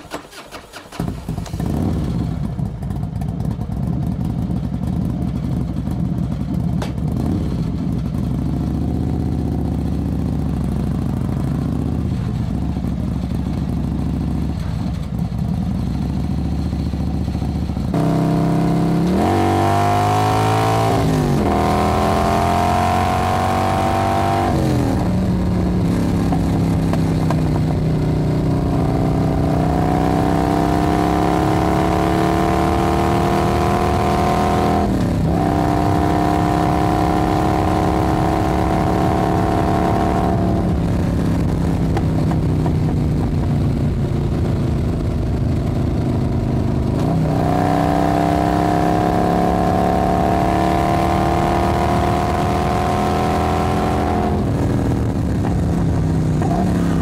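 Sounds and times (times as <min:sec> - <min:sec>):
motorbike engine revving: 0:17.7 - 0:43.0, 0:44.3 - 0:57.0.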